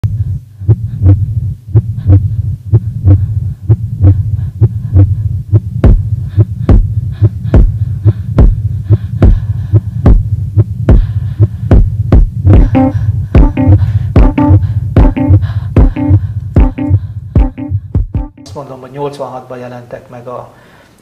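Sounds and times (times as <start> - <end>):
heartbeat-like throbbing: 0.0 - 18.4
low hum: 0.0 - 18.5
deep thumps: 5.8 - 6.9, 10.9 - 18.4
pitched musical notes: 12.6 - 18.6.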